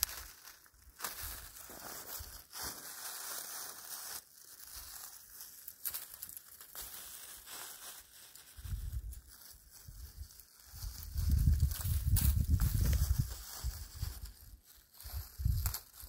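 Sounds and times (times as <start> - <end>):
rustling crinkling noise: 0.0 - 16.0.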